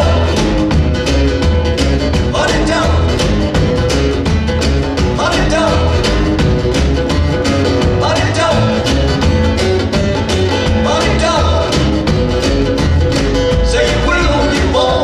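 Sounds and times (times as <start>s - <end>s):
person singing: 0.0s - 0.8s, 2.2s - 3.4s, 5.0s - 6.4s, 7.9s - 9.1s, 10.6s - 12.1s, 13.6s - 15.0s
acoustic guitar: 0.0s - 15.0s
drum kit beat: 0.0s - 15.0s
upright bass: 0.0s - 15.0s.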